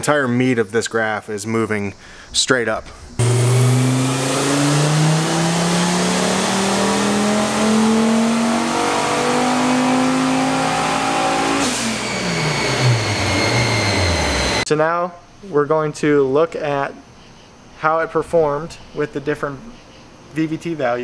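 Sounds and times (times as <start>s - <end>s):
engine revving at full throttle: 3.2s - 14.6s.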